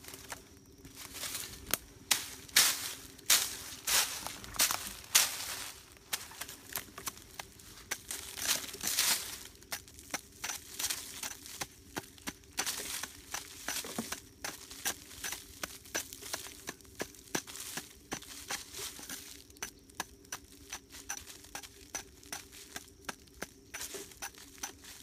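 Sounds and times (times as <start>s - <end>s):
dry leaves crunching: 0.0s - 25.0s
digging tool chopping into soil: 6.1s - 25.0s.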